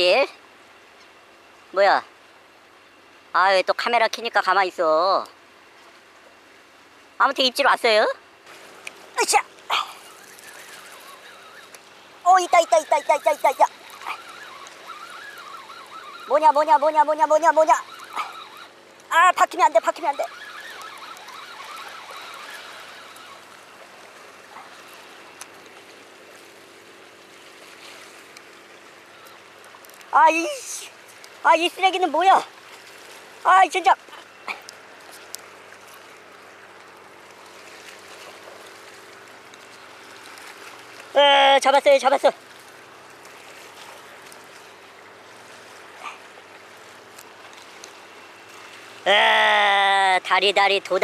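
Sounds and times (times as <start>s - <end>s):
sea water lapping against rocks: 19.7s - 30.1s, 32.2s - 41.2s, 42.4s - 49.1s
sea water lapping on rocks: 32.2s - 41.2s.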